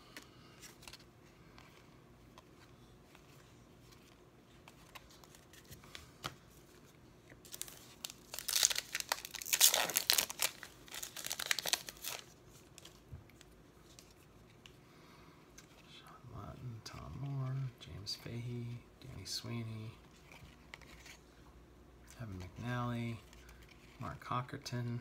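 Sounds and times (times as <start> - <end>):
foil wrapper crinkling: 7.4 - 13.5.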